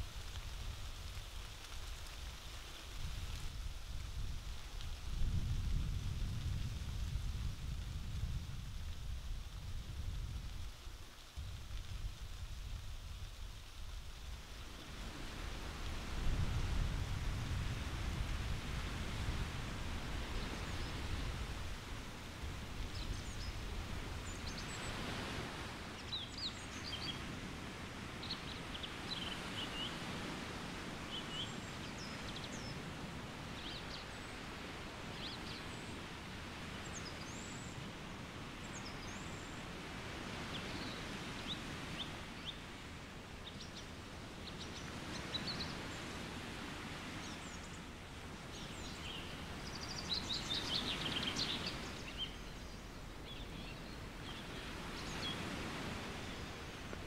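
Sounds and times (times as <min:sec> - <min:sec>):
wind rushing through trees: 0:00.0 - 0:57.0
songbirds chirping: 0:22.8 - 0:37.9, 0:38.5 - 0:57.0.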